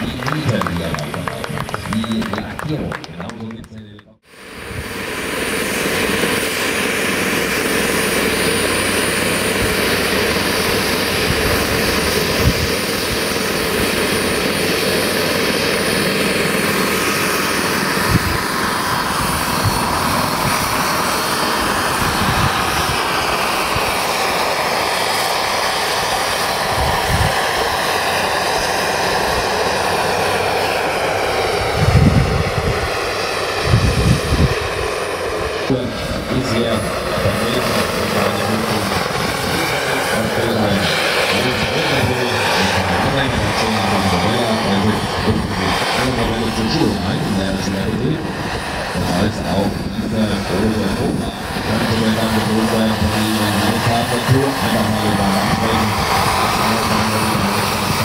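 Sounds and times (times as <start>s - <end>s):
model helicopter rotor and engine: 0.0s - 58.0s.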